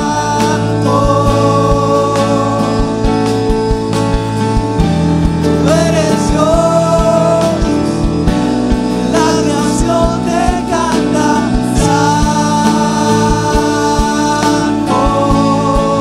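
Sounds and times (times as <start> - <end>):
man singing: 0.0 - 4.6, 5.3 - 16.0
drum hits: 0.0 - 16.0
worship band playing: 0.0 - 16.0.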